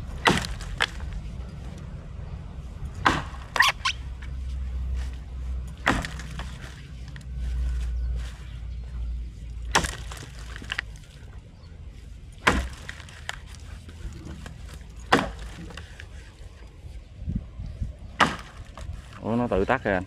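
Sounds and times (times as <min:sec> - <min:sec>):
axe chopping wood: 0:00.0 - 0:01.2, 0:03.0 - 0:03.8, 0:05.6 - 0:06.8, 0:09.7 - 0:10.8, 0:12.4 - 0:13.6, 0:14.3 - 0:16.1, 0:18.0 - 0:19.2
steady low rumble: 0:00.0 - 0:20.0.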